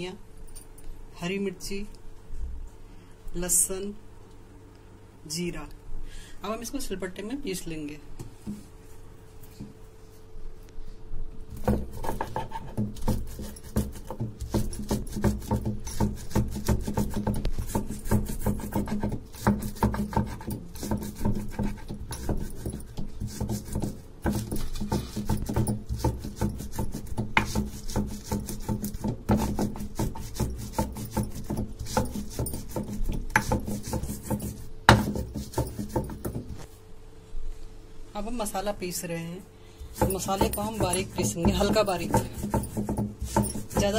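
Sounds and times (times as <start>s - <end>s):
stone pestle grinding on slab: 11.5s - 36.6s, 39.8s - 43.9s.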